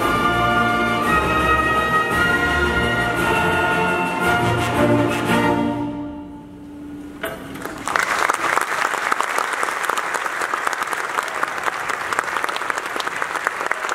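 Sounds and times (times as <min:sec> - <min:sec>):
audience applause: 0:07.5 - 0:13.9.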